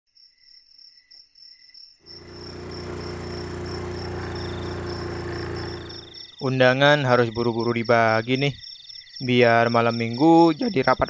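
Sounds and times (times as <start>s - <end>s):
small motorcycle engine: 2.1s - 6.3s
crickets chirping: 2.1s - 6.4s.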